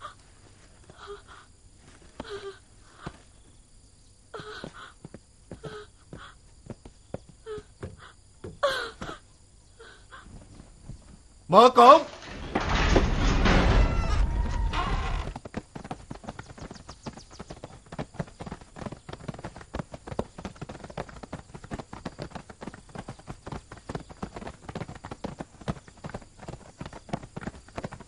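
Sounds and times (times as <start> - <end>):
horse hooves clip-clopping: 14.4 - 28.0.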